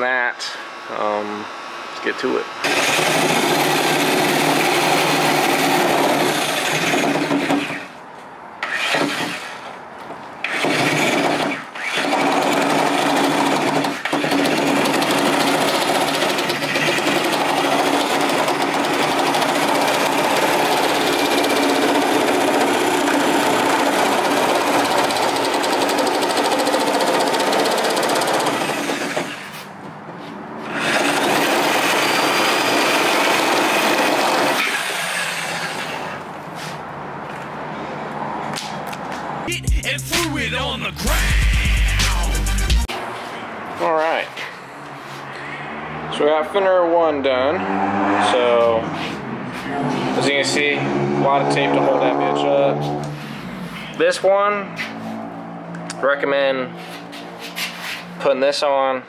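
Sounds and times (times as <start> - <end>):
reciprocating saw cutting plastic: 2.6 - 8.0, 8.6 - 9.7, 10.4 - 29.7, 30.6 - 36.3.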